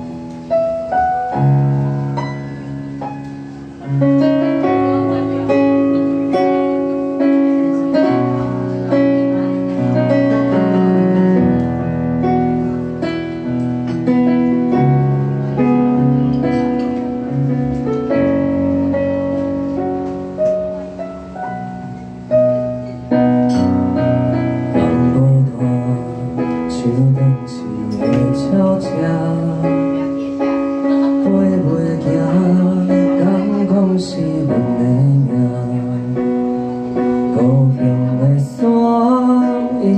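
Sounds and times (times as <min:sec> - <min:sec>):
piano chords and melody: 0:00.0 - 0:39.9
man singing: 0:24.8 - 0:30.2, 0:30.9 - 0:36.5, 0:37.2 - 0:39.9.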